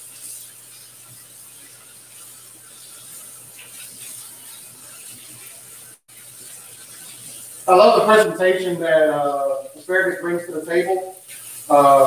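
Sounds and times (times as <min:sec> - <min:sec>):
tap water running: 0:00.0 - 0:12.0.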